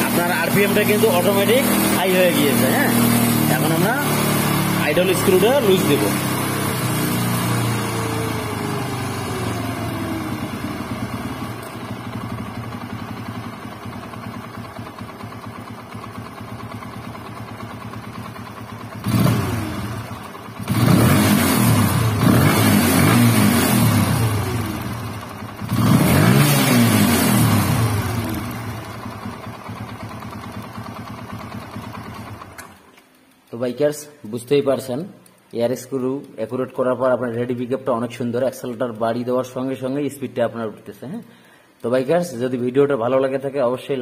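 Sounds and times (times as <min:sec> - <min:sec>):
motorcycle engine idling and revving: 0:00.0 - 0:32.9.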